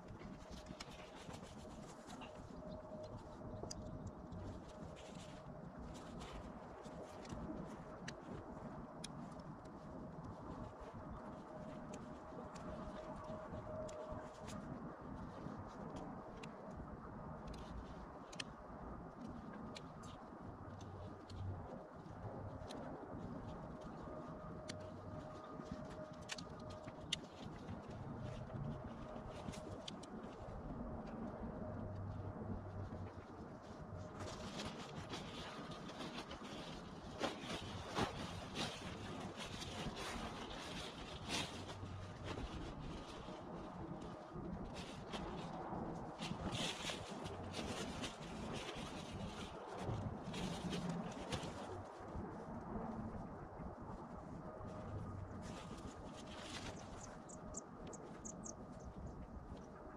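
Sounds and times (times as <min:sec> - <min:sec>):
tent rustling: 0:00.0 - 0:13.6, 0:33.4 - 0:52.2, 0:54.9 - 0:57.1
light clicks from tent poles: 0:00.0 - 0:33.3.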